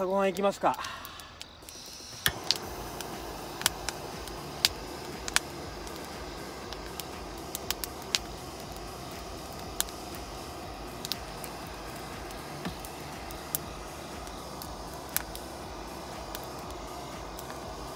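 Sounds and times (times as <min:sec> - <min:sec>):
gas stove burner hissing: 0:00.0 - 0:17.9.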